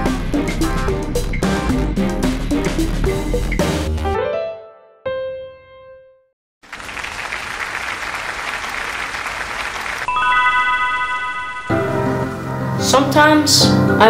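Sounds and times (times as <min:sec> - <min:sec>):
applause: 0:06.6 - 0:10.8
chime-like note: 0:10.1 - 0:12.8
logo jingle: 0:10.1 - 0:12.8
bell-like piano chord: 0:10.1 - 0:13.3.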